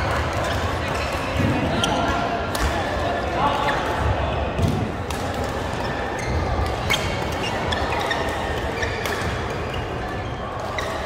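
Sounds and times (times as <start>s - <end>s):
rackets hitting shuttlecock: 0.1s - 3.0s, 3.6s - 11.0s
shoes squeaking on court floor: 5.6s - 11.0s.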